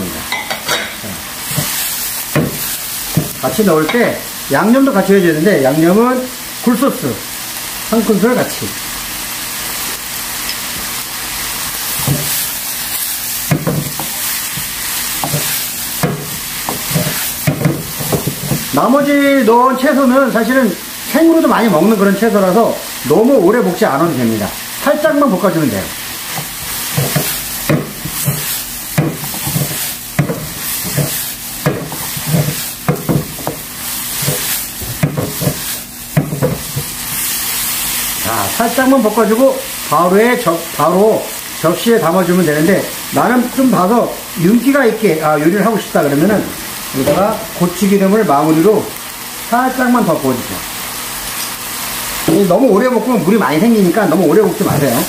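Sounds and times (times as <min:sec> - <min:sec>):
food sizzling in a frying pan: 0:00.0 - 0:55.0
spatula knocking on pan: 0:00.3 - 0:04.1, 0:12.0 - 0:12.4, 0:13.5 - 0:18.8, 0:26.3 - 0:37.0.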